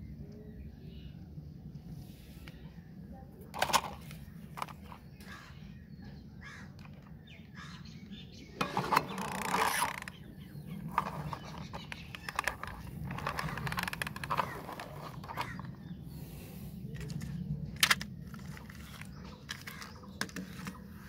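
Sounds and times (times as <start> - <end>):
plastic parts clicking and rattling: 3.5 - 5.1, 8.6 - 15.9, 16.9 - 21.0.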